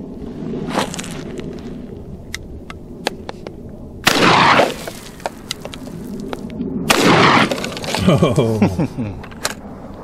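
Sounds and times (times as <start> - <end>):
shotgun shots: 4.0 - 4.9, 6.9 - 8.0.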